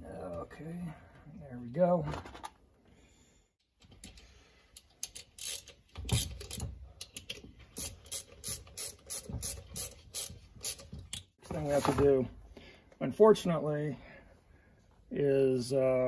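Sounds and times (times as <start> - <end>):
metal parts clicking and tapping: 3.8 - 11.3.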